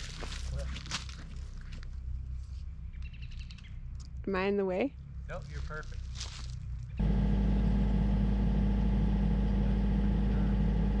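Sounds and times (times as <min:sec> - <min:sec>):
diesel excavator engine idling: 0:06.9 - 0:11.0.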